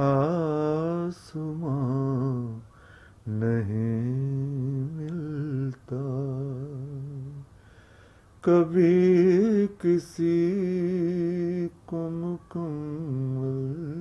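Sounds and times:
man singing unaccompanied: 0.0s - 7.6s, 8.4s - 14.0s
man breathing: 2.7s - 3.2s, 7.5s - 8.4s.

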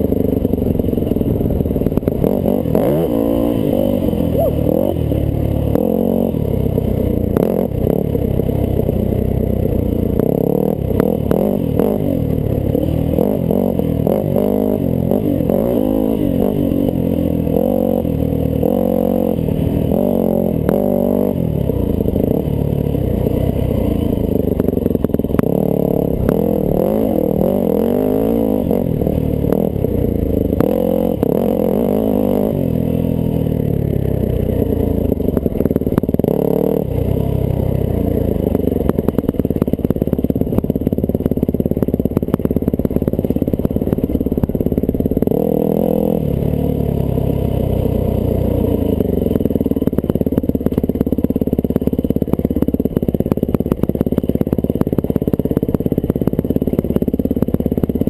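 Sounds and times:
dirt bike engine revving: 0.0s - 8.9s, 10.0s - 33.6s, 34.3s - 39.2s, 44.7s - 49.0s.

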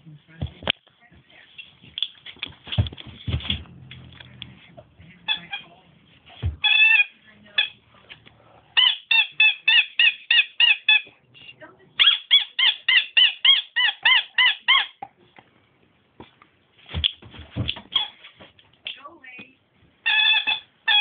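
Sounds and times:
rubber squeaky toy squeaks: 5.2s - 5.8s, 6.4s - 7.8s, 8.8s - 11.1s, 12.0s - 15.1s, 17.0s - 18.2s, 20.0s - 21.0s.

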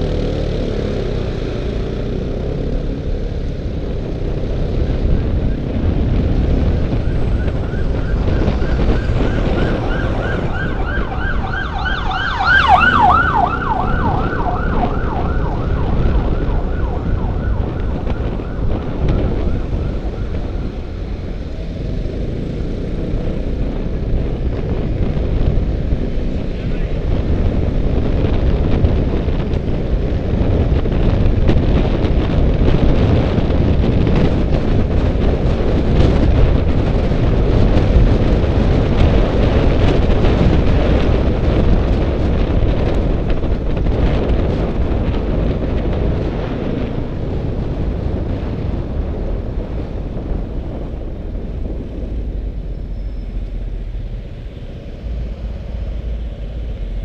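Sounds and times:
road noise: 0.0s - 57.0s
wind buffeting on microphone: 0.0s - 57.0s.

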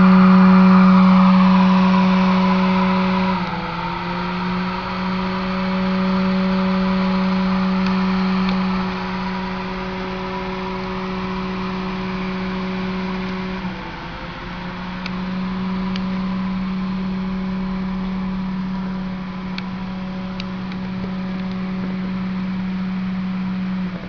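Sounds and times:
bench equipment humming: 0.0s - 24.0s.

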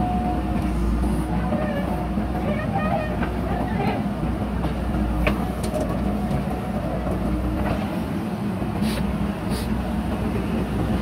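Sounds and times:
short hisses: 8.8s - 9.8s.

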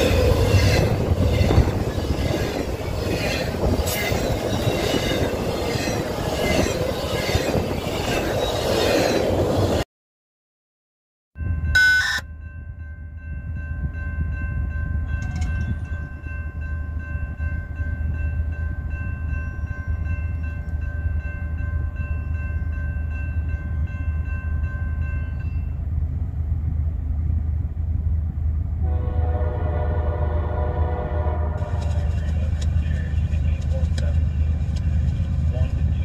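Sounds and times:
train rumbling by: 0.0s - 9.8s, 13.1s - 36.0s
train horn chord: 28.8s - 32.0s.

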